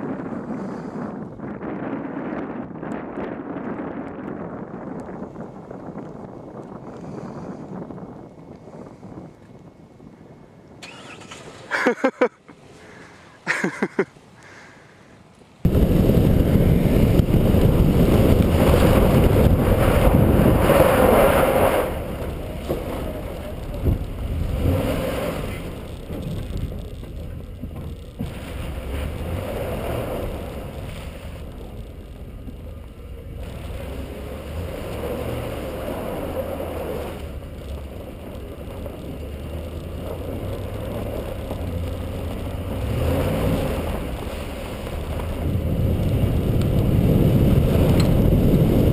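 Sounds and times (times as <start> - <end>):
wind rushing over microphone: 0.0 - 10.9, 15.6 - 48.9
truck engine: 10.7 - 14.4, 15.2 - 48.9
tyre noise on snow: 10.8 - 14.7, 15.6 - 48.9.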